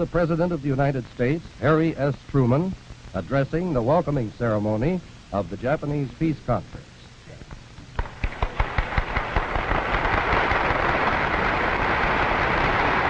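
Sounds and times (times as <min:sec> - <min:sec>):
audience applauding: 0:08.8 - 0:13.0.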